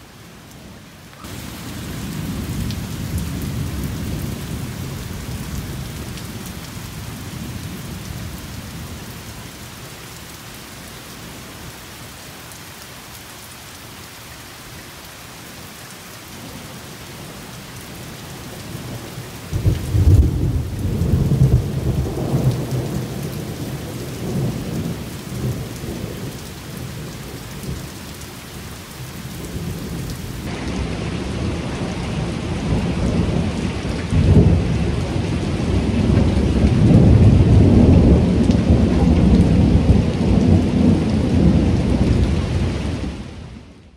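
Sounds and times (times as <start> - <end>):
heavy rain: 0.0 - 43.9
thunder rumbling: 1.2 - 9.1, 19.5 - 27.8, 29.4 - 43.2.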